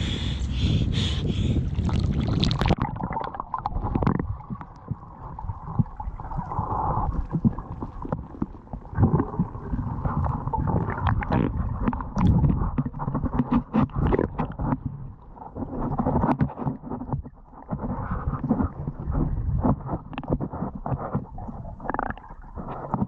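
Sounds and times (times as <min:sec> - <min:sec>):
muffled underwater rumble: 0:00.0 - 0:23.0
gurgling bubbles: 0:00.1 - 0:23.0
underwater clicks: 0:10.8 - 0:14.9.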